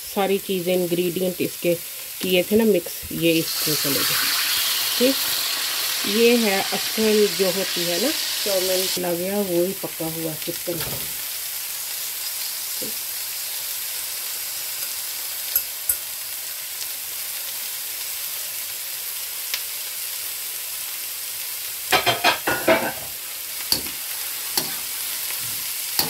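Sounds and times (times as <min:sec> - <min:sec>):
chicken frying in oil: 0:00.4 - 0:26.0
metal spatula scraping a wok: 0:23.7 - 0:26.0.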